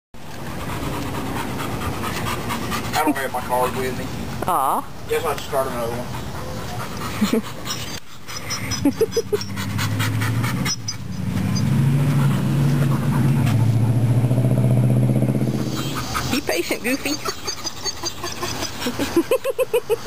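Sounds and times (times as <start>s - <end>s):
dog panting quickly: 0.3s - 4.1s, 5.2s - 14.1s, 15.5s - 19.4s
vehicle engine hum: 8.4s - 20.0s.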